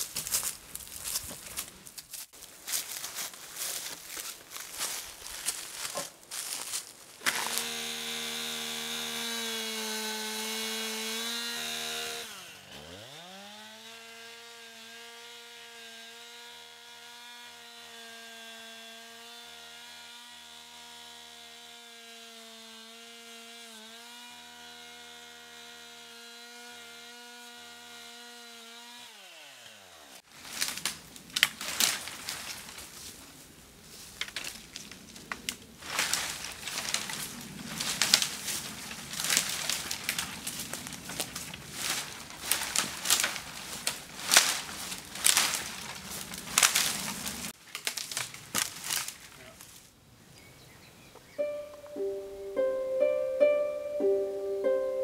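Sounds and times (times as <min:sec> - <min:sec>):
cracking and rustling in brush: 0:00.0 - 0:07.7, 0:30.3 - 0:50.0
chainsaw running: 0:07.2 - 0:30.7, 0:35.9 - 0:47.6.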